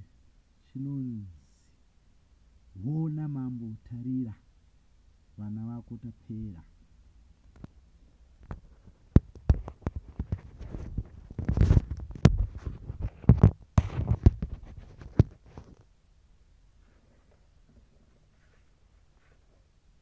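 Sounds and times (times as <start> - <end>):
phone handling knocks and rubbing: 8.4 - 15.8.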